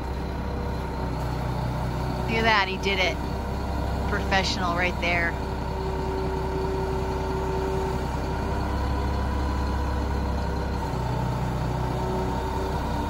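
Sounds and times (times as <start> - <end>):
truck engine running: 0.0 - 13.0
deeper hum: 2.2 - 5.6.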